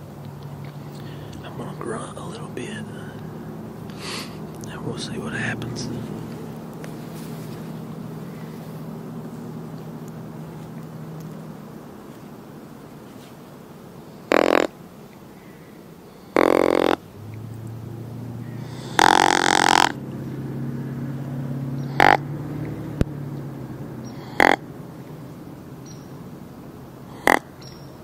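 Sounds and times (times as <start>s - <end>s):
deer grunt call: 14.3s - 14.7s, 16.3s - 17.0s, 17.6s - 20.7s, 21.8s - 23.0s, 24.0s - 24.8s, 27.0s - 27.6s.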